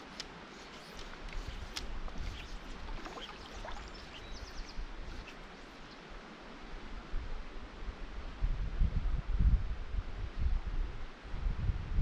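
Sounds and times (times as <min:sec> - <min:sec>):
small bird chirps: 0:02.2 - 0:06.0.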